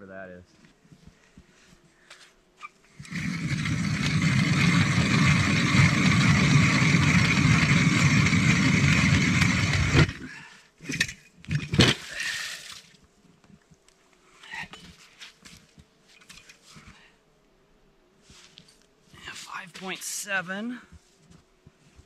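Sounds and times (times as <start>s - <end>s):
ice auger grinding ice: 2.9s - 12.6s
auger scraping and knocking: 3.0s - 10.2s.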